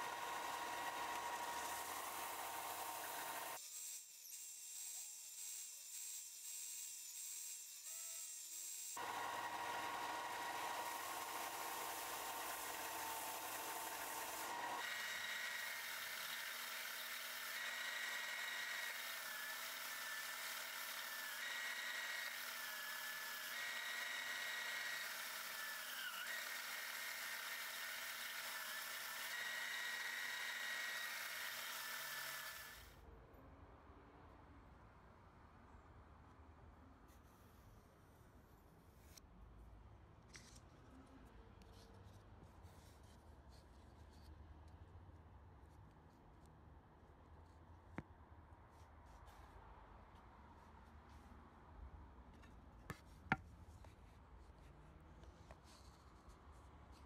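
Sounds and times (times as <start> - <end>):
belt sander whine: 0.0 - 3.6, 9.0 - 20.0.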